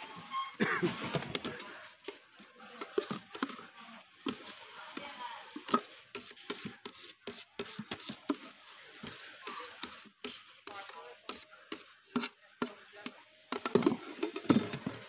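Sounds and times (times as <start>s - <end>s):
metal spoon scraping plastic bucket: 2.8s - 8.4s, 9.0s - 15.0s.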